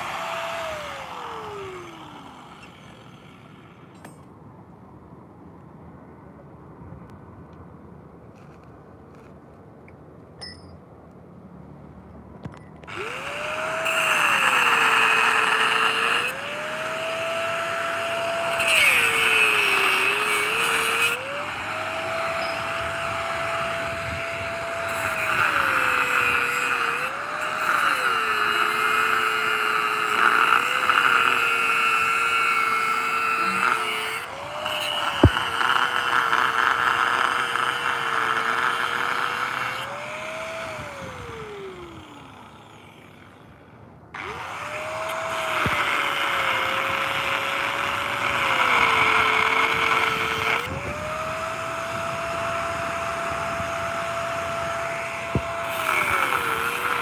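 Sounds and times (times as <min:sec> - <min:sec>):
angle grinder cutting steel: 0:00.0 - 0:04.2, 0:12.8 - 0:43.6, 0:44.2 - 0:57.0.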